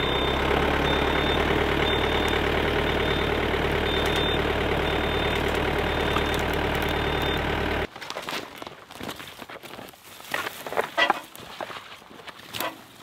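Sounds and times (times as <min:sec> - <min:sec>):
engine idling: 0:00.0 - 0:07.9
clicks: 0:03.9 - 0:07.9.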